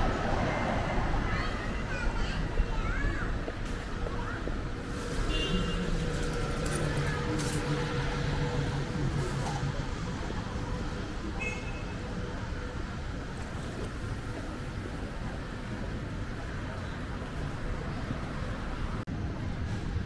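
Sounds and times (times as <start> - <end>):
road rumble: 0.0 - 20.0
vehicle engine hum: 4.4 - 11.4.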